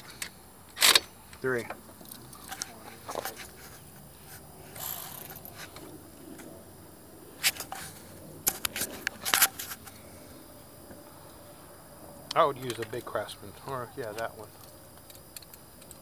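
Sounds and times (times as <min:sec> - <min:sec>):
handling clicks and clatters: 0:00.0 - 0:06.5, 0:07.4 - 0:10.0.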